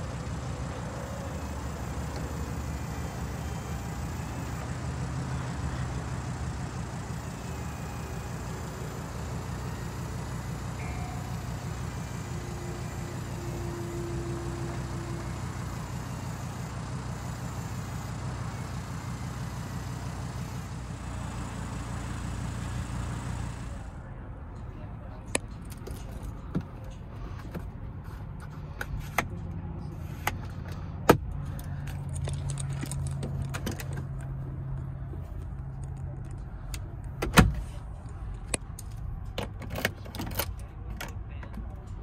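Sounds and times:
car engine idling: 0.0s - 42.0s
thin whine: 0.9s - 18.8s.

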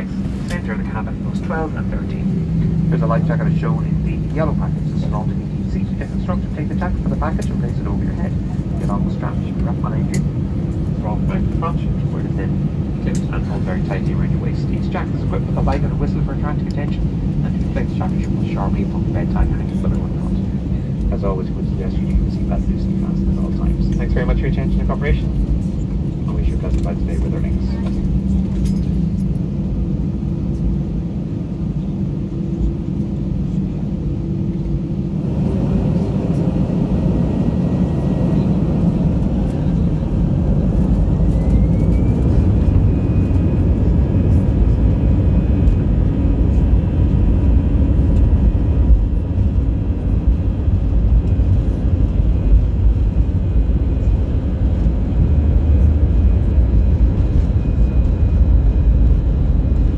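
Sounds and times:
jet engines roaring: 0.0s - 59.9s
rising engine whine: 0.0s - 59.9s.

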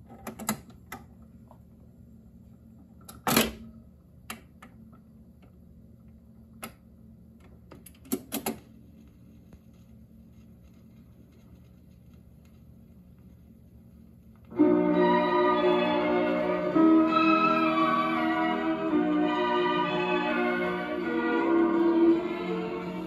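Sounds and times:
record changer clicks and clunks: 0.0s - 1.1s, 7.4s - 8.7s
steady low hum: 8.6s - 23.0s.

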